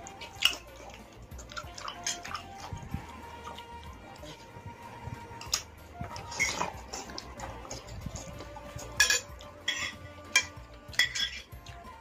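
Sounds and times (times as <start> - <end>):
cutlery clinking against bowls: 0.0 - 2.7, 5.3 - 11.7.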